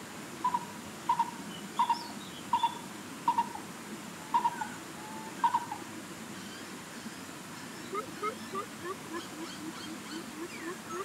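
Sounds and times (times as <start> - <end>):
higher bird chirps: 7.8 - 11.0.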